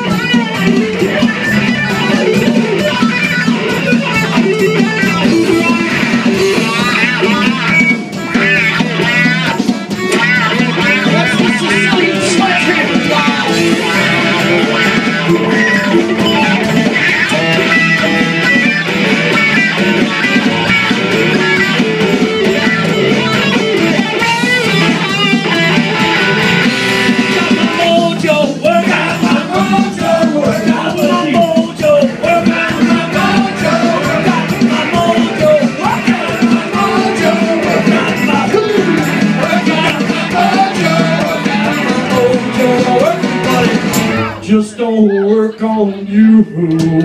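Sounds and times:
electric guitar solo: 0:00.0 - 0:28.3
blues band playing: 0:00.0 - 0:47.0.

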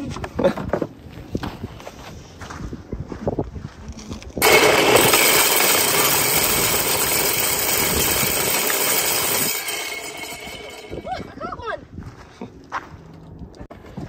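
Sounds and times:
feeder spinner motor whirring: 0:04.4 - 0:11.4.

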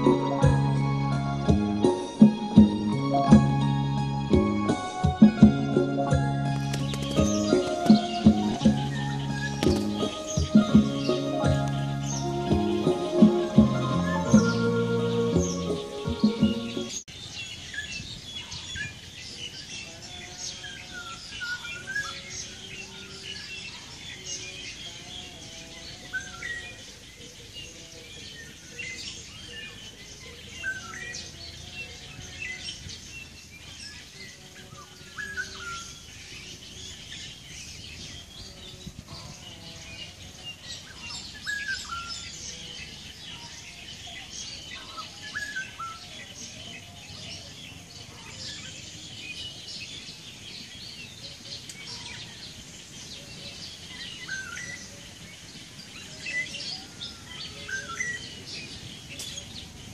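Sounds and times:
high bird chirping: 0:06.4 - 0:17.1.

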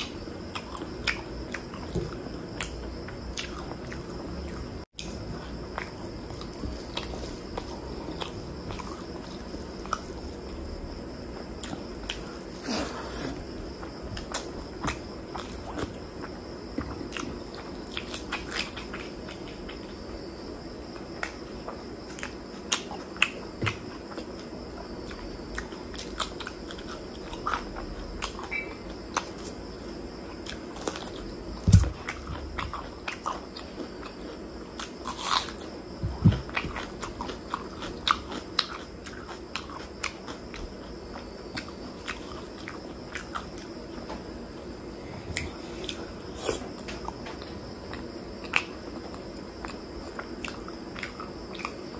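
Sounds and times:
crunchy bites: 0:30.4 - 0:44.2.

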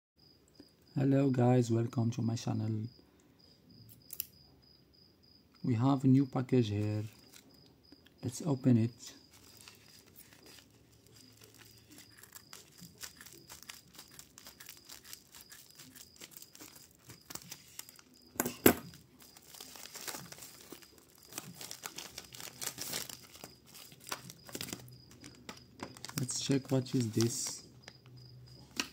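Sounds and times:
plastic mailer crinkling: 0:09.2 - 0:28.1.

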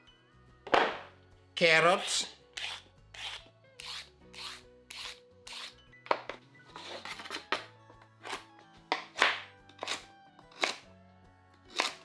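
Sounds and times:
soft background music: 0:00.0 - 0:12.0
knife scraping board: 0:02.0 - 0:05.7, 0:06.7 - 0:07.5, 0:09.2 - 0:10.8, 0:11.7 - 0:12.0
knife chopping on wooden board: 0:08.9 - 0:10.8, 0:11.7 - 0:12.0.

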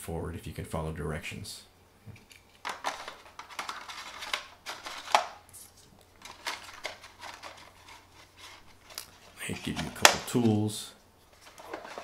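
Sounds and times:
paper and cardboard handling: 0:02.6 - 0:12.0.

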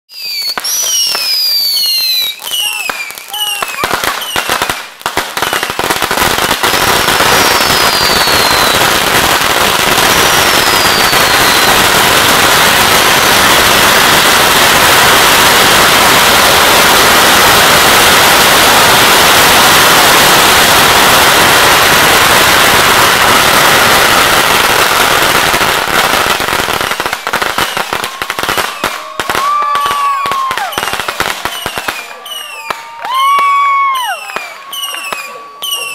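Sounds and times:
falling whistles: 0:00.1 - 0:04.9, 0:07.3 - 0:08.9, 0:10.2 - 0:11.8
firecrackers crackling: 0:00.1 - 0:35.9.

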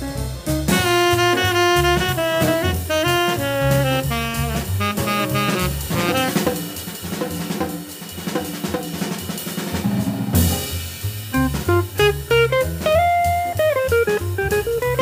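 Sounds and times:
jazz drum kit playing: 0:00.0 - 0:15.0
saxophone phrase: 0:00.7 - 0:06.6.

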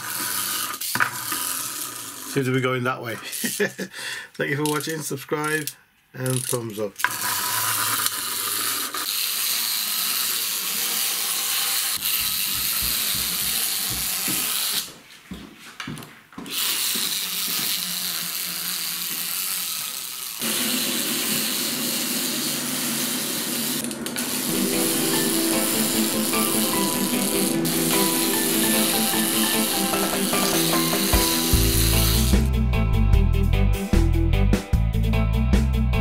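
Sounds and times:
clockwork toy motor whirring: 0:00.0 - 0:03.7, 0:06.2 - 0:14.9, 0:16.5 - 0:32.5.

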